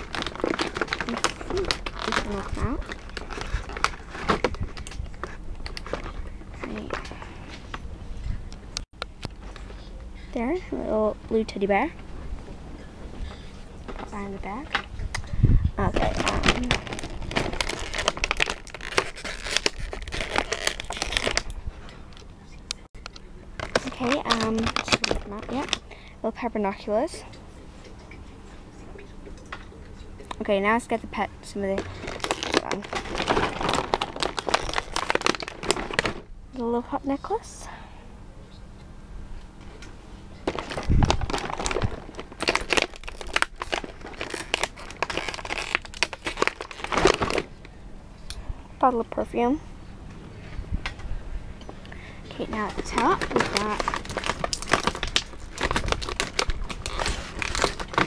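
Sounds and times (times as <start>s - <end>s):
plastic packaging crinkling: 0.0s - 7.2s, 15.8s - 21.6s, 23.6s - 26.1s, 31.6s - 36.3s, 40.4s - 47.6s, 52.3s - 58.0s.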